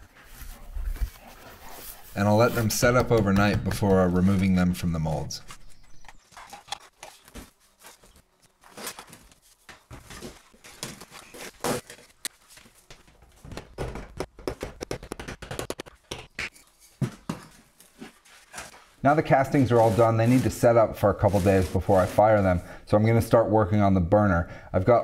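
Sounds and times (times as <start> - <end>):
hands knocking plastic molds: 2.8 - 4.5, 13.4 - 17.5.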